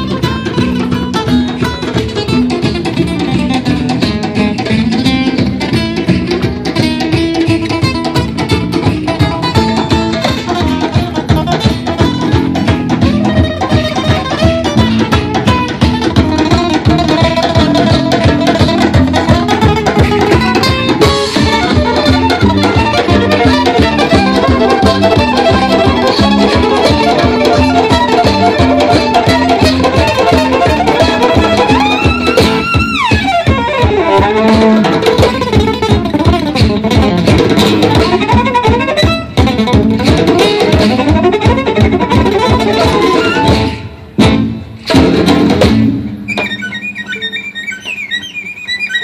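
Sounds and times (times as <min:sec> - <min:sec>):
strummed acoustic guitar: 0:00.0 - 0:46.8
hand drum: 0:00.0 - 0:48.3
upright bass: 0:00.0 - 0:48.3
violin melody: 0:08.0 - 0:44.0, 0:46.3 - 0:49.0.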